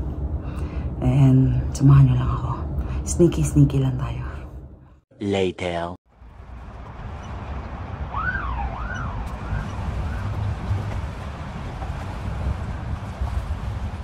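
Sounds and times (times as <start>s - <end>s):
low rumble of traffic: 0.0s - 5.0s, 6.1s - 14.0s
wind noise: 6.2s - 14.0s
siren wailing: 8.1s - 10.4s.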